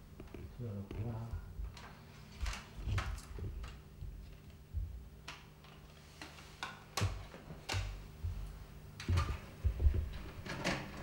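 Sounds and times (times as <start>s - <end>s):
faint low hum: 0.0s - 6.4s.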